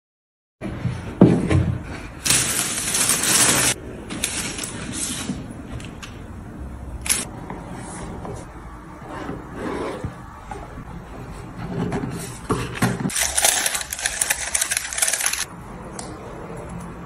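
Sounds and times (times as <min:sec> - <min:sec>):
tissue paper rustling: 0:02.2 - 0:05.3, 0:13.1 - 0:15.5.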